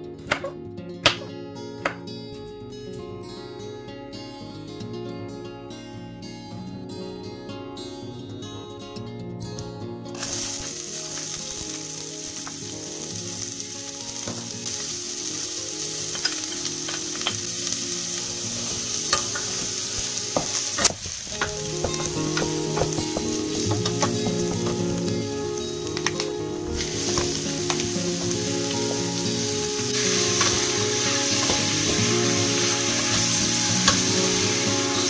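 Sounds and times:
onion sizzling in oil: 0:10.2 - 0:35.0
wooden spoon knocking on pan: 0:20.4 - 0:24.8.

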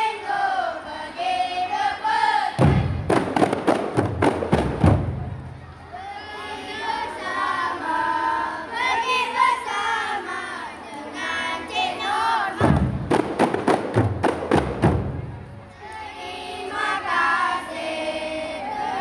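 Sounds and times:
voices chanting in unison: 0:00.0 - 0:03.1, 0:05.9 - 0:13.0, 0:15.8 - 0:19.0
frame drums beating: 0:02.6 - 0:05.6, 0:12.6 - 0:15.6.

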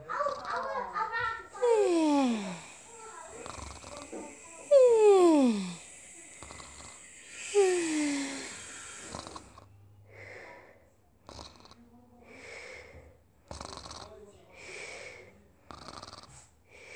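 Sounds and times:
child imitating snoring: 0:00.1 - 0:00.9, 0:01.5 - 0:09.7, 0:11.3 - 0:11.8, 0:13.5 - 0:14.2, 0:15.7 - 0:16.4.

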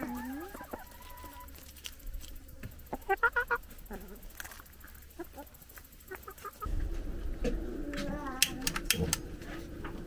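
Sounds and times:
hens clucking: 0:00.0 - 0:01.8, 0:02.5 - 0:06.7.

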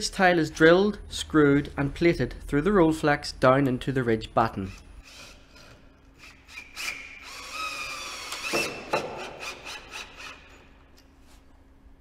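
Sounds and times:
cordless drill motor whine: 0:06.2 - 0:10.4.

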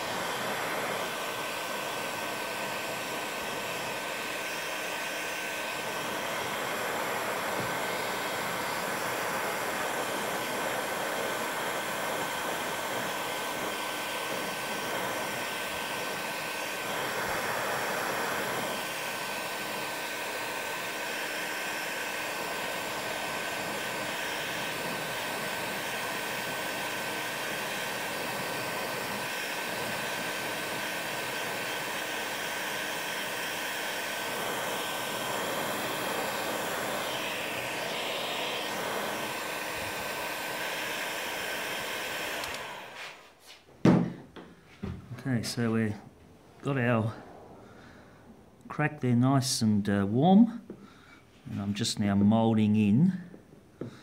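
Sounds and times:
heat gun blowing air: 0:00.0 - 0:48.5.

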